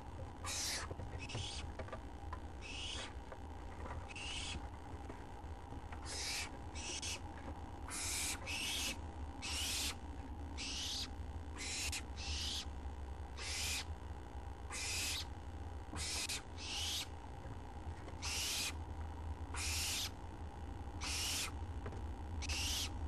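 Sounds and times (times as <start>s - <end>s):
owlets hissing screeches: 21.0s - 21.5s.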